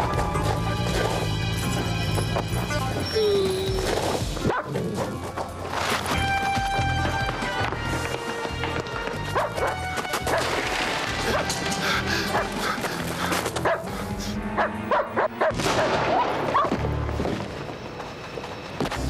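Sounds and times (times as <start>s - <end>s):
background music: 0.0s - 19.0s
dog barking and yelping: 3.2s - 5.1s, 13.6s - 13.9s, 14.6s - 16.7s.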